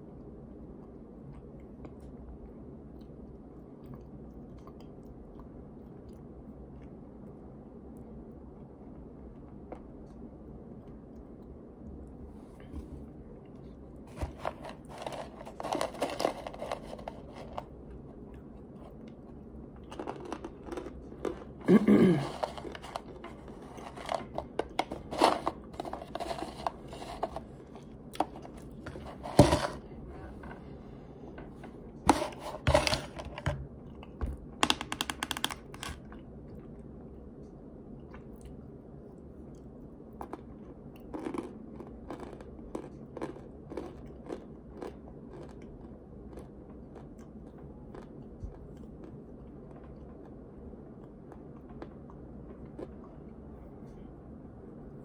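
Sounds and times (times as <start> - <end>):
plastic jar clicks and scrapes: 14.1 - 17.7, 22.2 - 27.5, 28.2 - 29.8, 32.1 - 33.5
powder rustling in jar: 14.1 - 17.7, 22.2 - 27.5.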